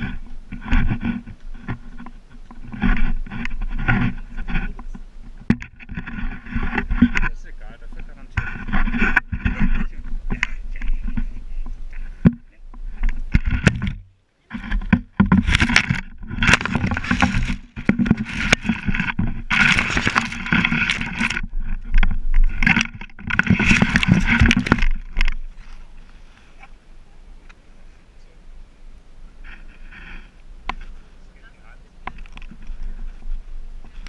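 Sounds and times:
sharp clicks and knocks: 0:00.0 - 0:25.5
camera handling noise: 0:15.3 - 0:25.4.

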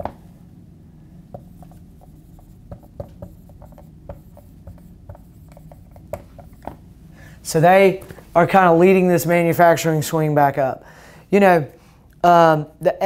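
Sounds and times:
low room hum: 0:00.0 - 0:13.0
marker writing on whiteboard: 0:01.3 - 0:06.8.

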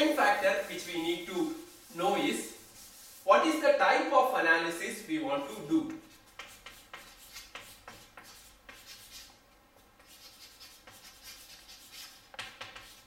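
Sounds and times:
chalk scratching and tapping: 0:00.0 - 0:03.3, 0:05.5 - 0:13.0.

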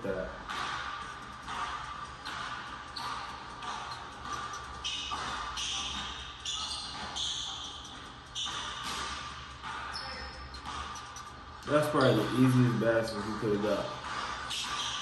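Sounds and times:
basketball bouncing on hardwood: 0:01.5 - 0:11.0.

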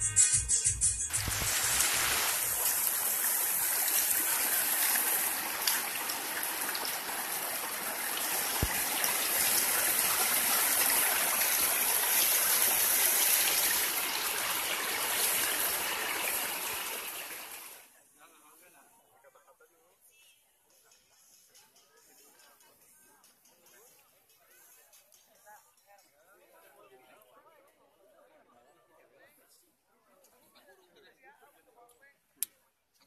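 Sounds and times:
music: 0:00.0 - 0:01.8
running water rushing: 0:01.1 - 0:17.8.

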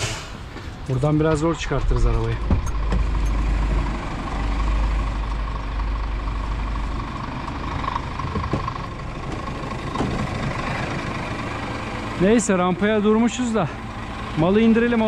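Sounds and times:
diesel truck engine idling: 0:00.0 - 0:15.0.

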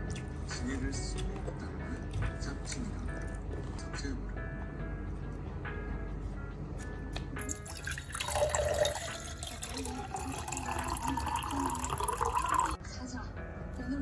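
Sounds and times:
water pouring into a glass: 0:07.4 - 0:12.8
rising tone of filling glass: 0:07.6 - 0:12.8.

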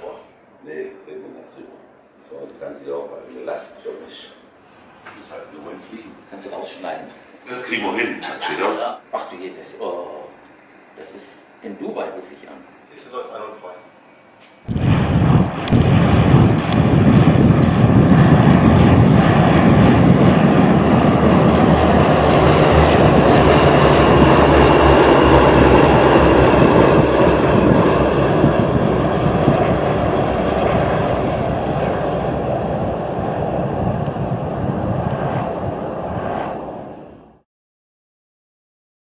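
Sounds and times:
propeller aeroplane engine: 0:14.7 - 0:37.4.

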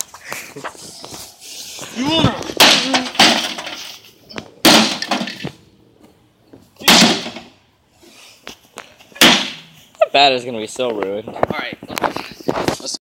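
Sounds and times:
baseball bat smashing microwave: 0:02.5 - 0:03.8, 0:04.6 - 0:05.5, 0:06.8 - 0:07.5, 0:09.2 - 0:09.6.

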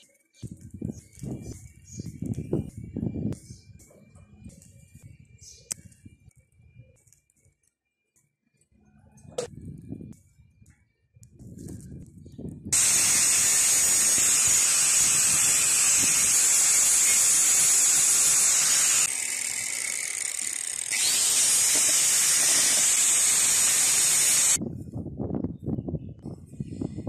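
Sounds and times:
angle grinder grinding metal: 0:12.7 - 0:24.6.

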